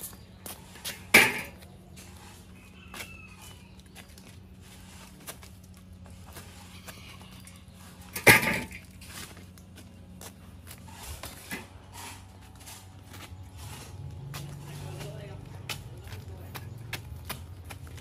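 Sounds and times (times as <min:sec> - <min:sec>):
log thudding onto metal wheelbarrow: 0:01.0 - 0:01.6, 0:08.1 - 0:08.9.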